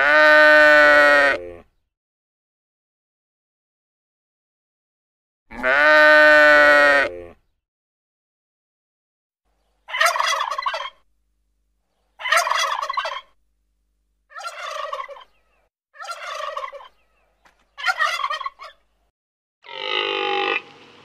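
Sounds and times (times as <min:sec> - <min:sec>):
turkey gobbling: 0:09.9 - 0:11.0, 0:12.2 - 0:13.4, 0:14.3 - 0:18.9.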